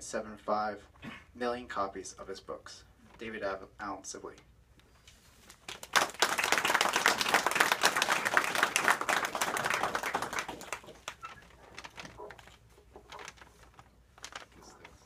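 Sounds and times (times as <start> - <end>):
audience applauding: 5.7 - 11.4.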